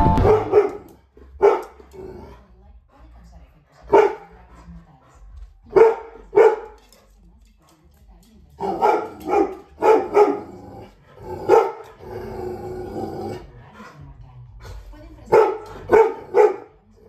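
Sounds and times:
dog barking: 0:00.2 - 0:01.8, 0:03.9 - 0:04.3, 0:05.7 - 0:06.8, 0:08.6 - 0:10.6, 0:11.3 - 0:11.9, 0:15.3 - 0:16.8.

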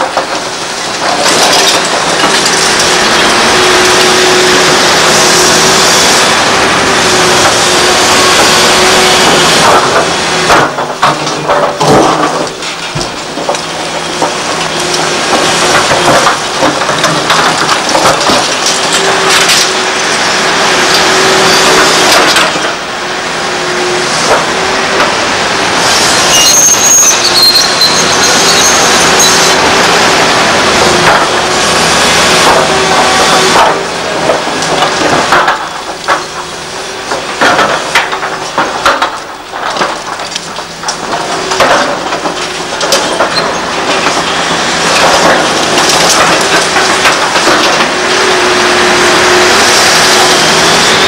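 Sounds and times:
bucket scraping rubble: 0:00.0 - 0:22.8, 0:23.8 - 0:51.0
debris crunching and clattering: 0:00.0 - 0:51.0
excavator diesel engine: 0:00.0 - 0:51.0
high squeal: 0:26.1 - 0:29.7.

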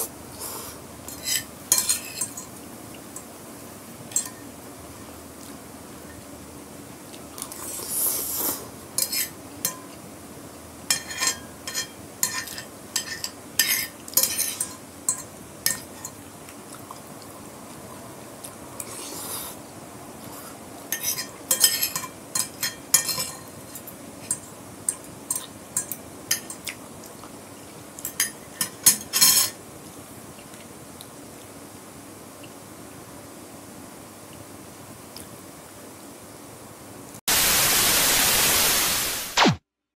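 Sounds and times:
cutlery clinking on glass plate: 0:01.1 - 0:02.5, 0:04.1 - 0:04.5, 0:10.9 - 0:16.2, 0:20.9 - 0:26.8, 0:28.0 - 0:29.6.

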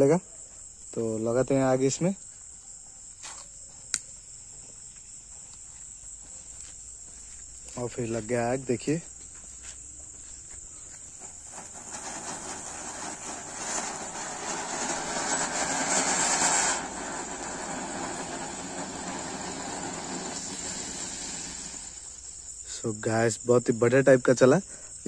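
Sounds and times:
crickets chirping: 0:00.0 - 0:25.0
firework fountain hissing: 0:10.8 - 0:22.8.

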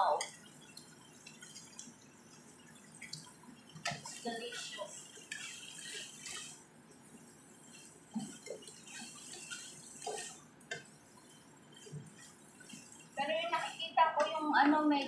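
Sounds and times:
chicken sizzling in a pan: 0:00.0 - 0:14.9
spatula scraping a pan: 0:03.8 - 0:14.4.

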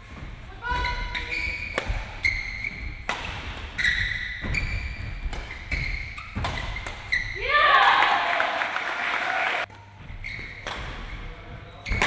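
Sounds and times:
shoes squeaking on floor: 0:00.0 - 0:07.4, 0:09.8 - 0:12.0
rackets hitting shuttlecock: 0:00.8 - 0:07.3.

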